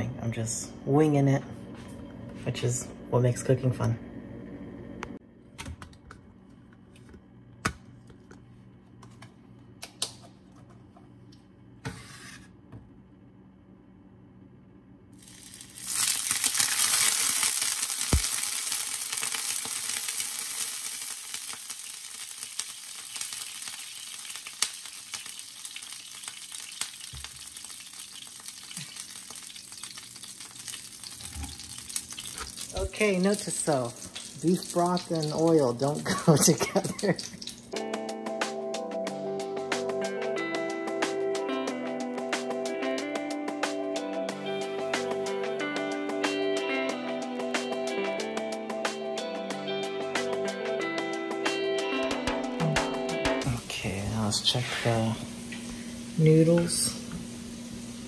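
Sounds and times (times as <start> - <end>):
broth sizzling in hot oil: 15.2 - 37.8, 53.4 - 58.0.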